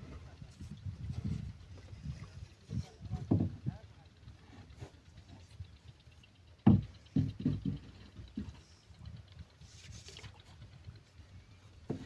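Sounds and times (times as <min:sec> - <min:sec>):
wooden pole knocking on boat: 0:03.0 - 0:03.8, 0:06.6 - 0:08.6.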